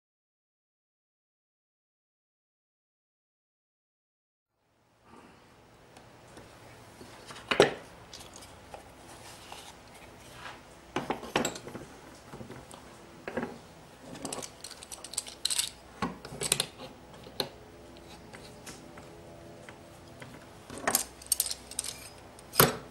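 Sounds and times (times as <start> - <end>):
metallic clinks and clicks: 14.2 - 15.8, 20.8 - 22.7.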